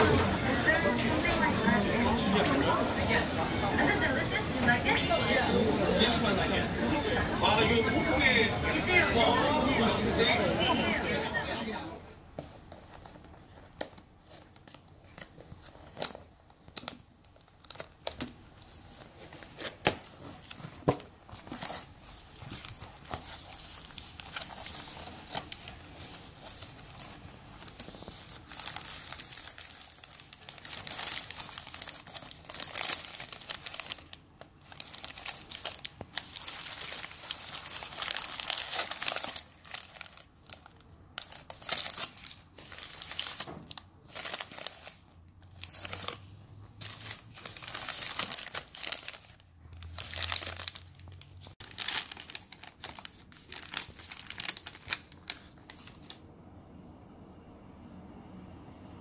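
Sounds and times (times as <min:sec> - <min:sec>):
paper wrappers crinkling: 0:12.1 - 0:56.2.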